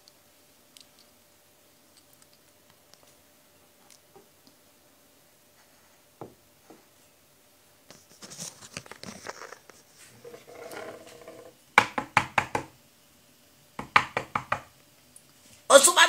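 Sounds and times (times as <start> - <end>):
knocks on a door: 11.8 - 12.7, 13.8 - 14.7.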